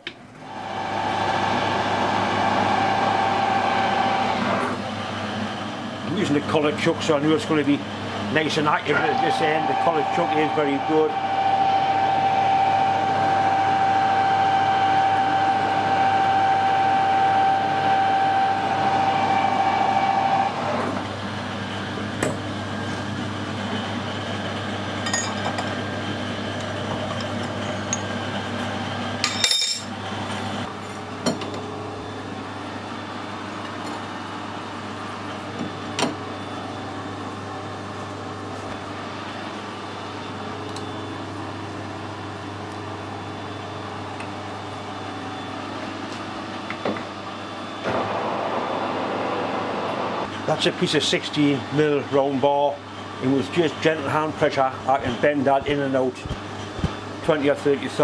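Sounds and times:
lathe low hum: 0.0s - 29.2s, 29.8s - 58.0s
metal lathe high-pitched squeal: 8.9s - 20.6s.

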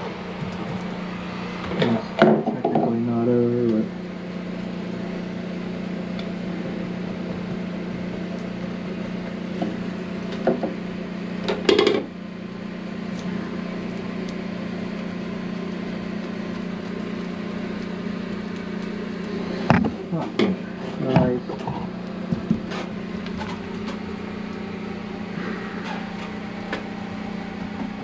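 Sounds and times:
small electric motor humming: 0.0s - 28.0s.

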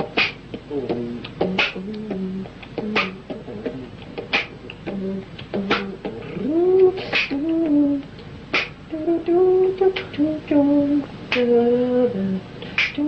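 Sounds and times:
man humming a melody: 0.0s - 13.0s
mouth percussion hits: 0.0s - 13.0s.

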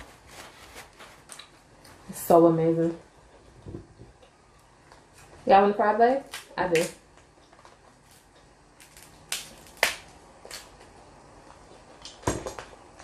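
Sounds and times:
crab shell cracking: 6.2s - 10.7s.

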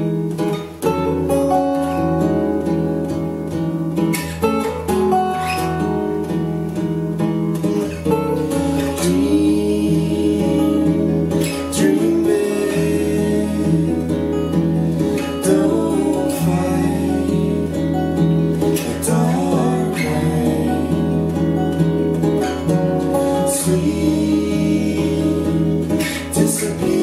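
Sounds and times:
acoustic guitars playing: 0.0s - 27.0s
person singing: 8.4s - 27.0s.

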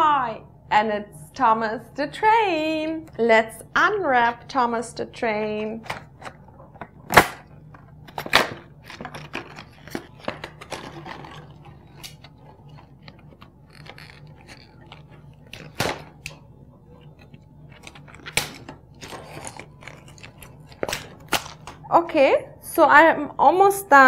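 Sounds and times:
sharp plastic cracks: 5.8s - 12.3s, 13.4s - 16.4s, 17.8s - 21.8s
packaging crinkling and tearing: 8.0s - 16.4s, 17.0s - 21.8s.

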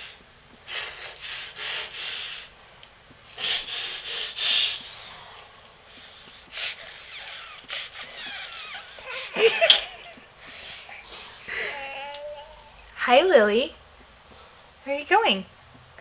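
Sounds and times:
baby sniffing: 0.0s - 2.5s, 3.3s - 9.4s.

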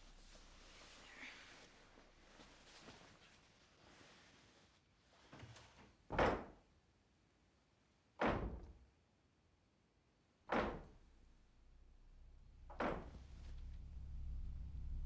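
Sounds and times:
banging on wooden wardrobe: 6.1s - 6.6s, 8.2s - 8.7s, 10.5s - 11.0s, 12.7s - 13.2s.

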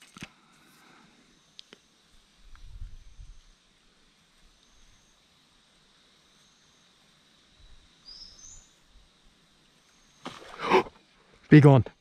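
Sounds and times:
high insect drone: 0.0s - 12.0s
bird chirping: 7.6s - 8.9s.

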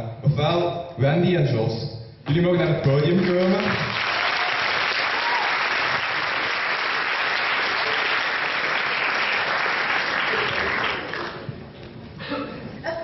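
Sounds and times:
audience applauding: 3.0s - 11.7s.

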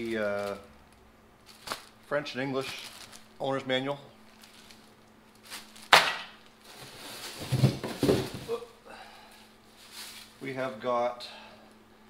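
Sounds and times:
rustling and scraping of packing: 2.6s - 3.3s, 4.3s - 6.0s, 6.6s - 8.7s, 9.7s - 10.4s.

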